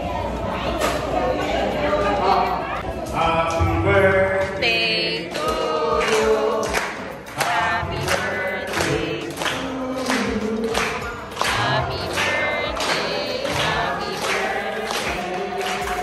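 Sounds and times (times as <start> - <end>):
group singing in unison: 3.2 - 16.0
hand claps: 5.3 - 16.0.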